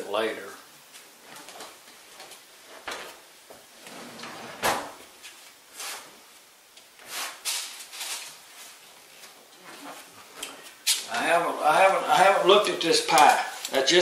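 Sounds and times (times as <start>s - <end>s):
oven door shutting: 3.9s - 5.0s.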